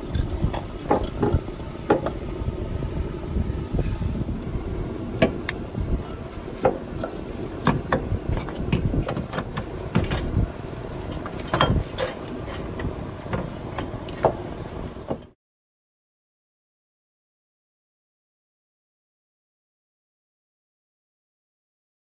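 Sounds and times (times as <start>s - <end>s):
steady low rumble: 0.0s - 15.4s.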